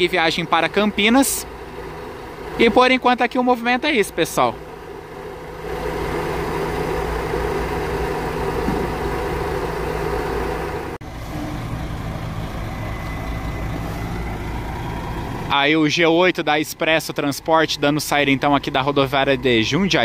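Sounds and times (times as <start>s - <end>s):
diesel engine idling: 0.0s - 20.0s.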